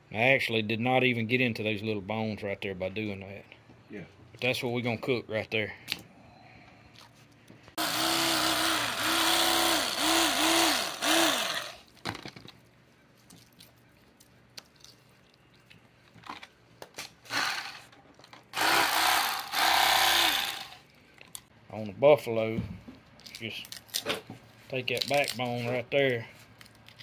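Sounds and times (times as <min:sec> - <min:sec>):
electric knife cutting fish: 0:07.8 - 0:11.8, 0:18.6 - 0:20.8.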